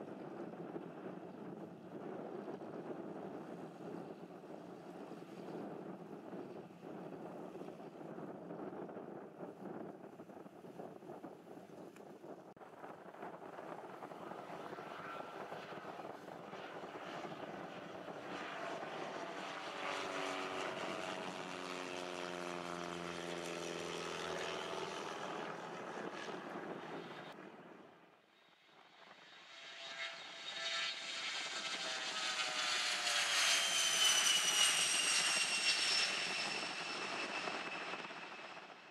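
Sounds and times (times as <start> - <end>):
propeller airplane engine drone: 0.0 - 38.9
jet taking off: 12.6 - 38.9.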